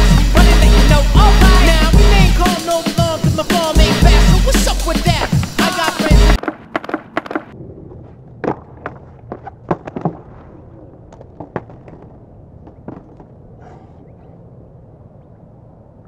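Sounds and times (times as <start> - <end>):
low outdoor background: 0.0 - 16.0
skateboard clattering on asphalt: 6.0 - 7.6.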